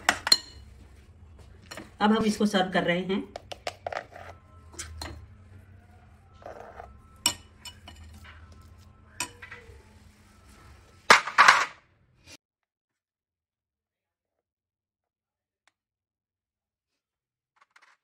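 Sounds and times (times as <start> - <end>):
spoon scraping steel pot: 3.3 - 5.3, 6.4 - 10.0.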